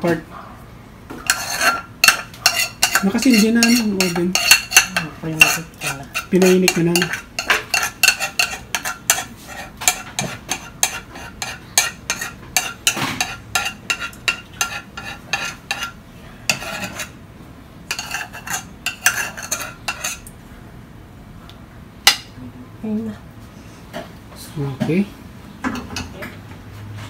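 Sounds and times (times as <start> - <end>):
spoon scraping saucepan: 1.2 - 17.2, 17.9 - 20.3.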